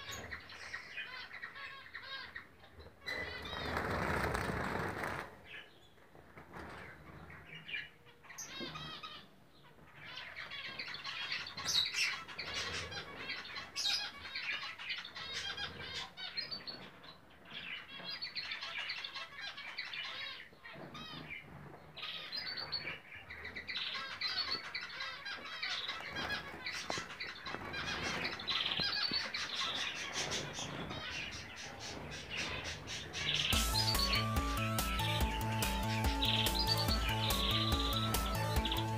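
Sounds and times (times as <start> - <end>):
wings fluttering: 3.1 - 5.6, 25.9 - 34.2.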